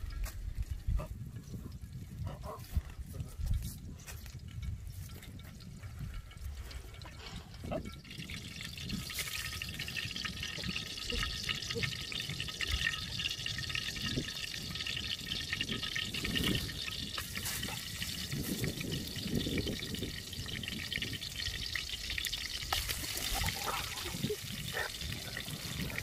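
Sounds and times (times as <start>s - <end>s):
oil sizzling in a wok: 8.1s - 26.0s.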